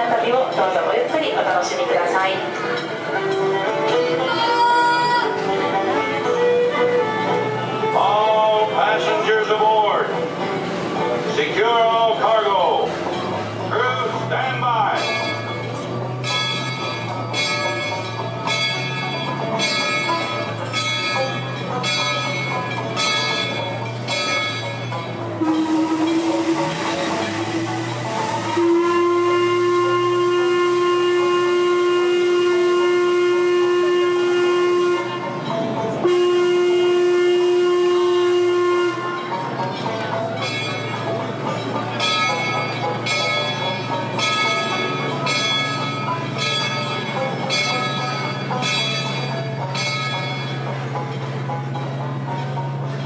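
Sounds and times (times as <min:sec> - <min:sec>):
ship's bell ringing: 0:00.0 - 0:53.0
steam whistle blowing: 0:25.4 - 0:35.4, 0:36.0 - 0:39.5.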